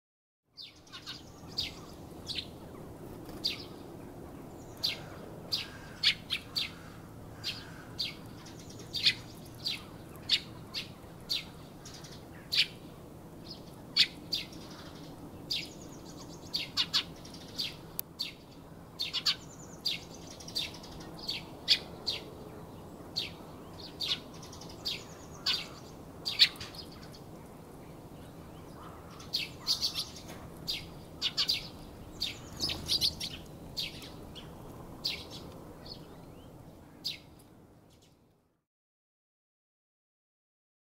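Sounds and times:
faint low background noise: 0:00.5 - 0:38.7
sparrow chirping: 0:00.6 - 0:02.8, 0:03.4 - 0:03.9, 0:04.5 - 0:12.8, 0:13.4 - 0:27.2, 0:28.2 - 0:37.3.

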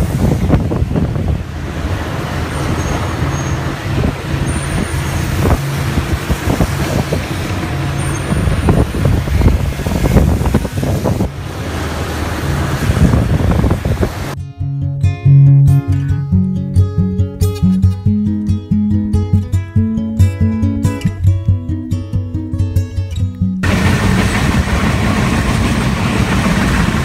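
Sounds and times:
engine drone: 0:00.0 - 0:16.2, 0:23.6 - 0:27.0
low rumbles: 0:00.0 - 0:17.3, 0:23.6 - 0:27.0
tyre hiss on wet road: 0:01.6 - 0:14.4.

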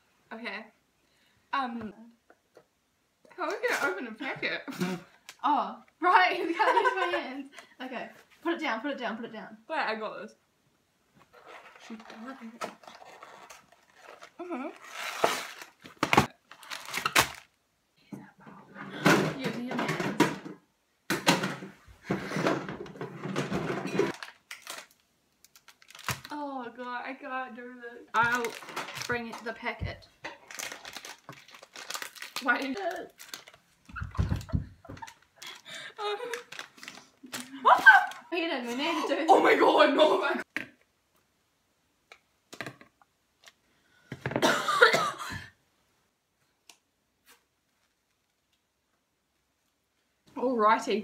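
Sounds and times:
plastic packet crinkling: 0:12.8 - 0:17.6, 0:24.1 - 0:26.4, 0:28.1 - 0:29.6, 0:30.3 - 0:38.4
woman's wordless vocal outburst: 0:37.2 - 0:40.4.

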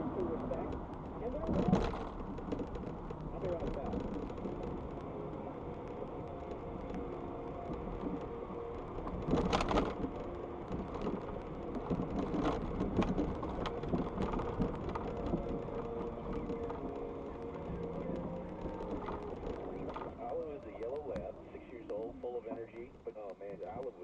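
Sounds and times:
car cabin road rumble: 0:00.0 - 0:24.0
noisy burst: 0:00.0 - 0:24.0.

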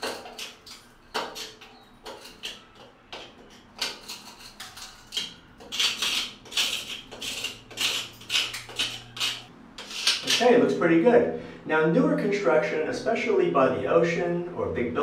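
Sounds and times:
screwdriver scraping rusted metal: 0:00.0 - 0:10.4.

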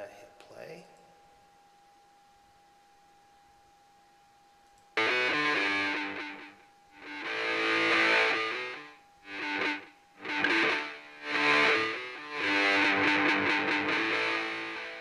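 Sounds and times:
distorted electric guitar chords: 0:05.0 - 0:15.0.

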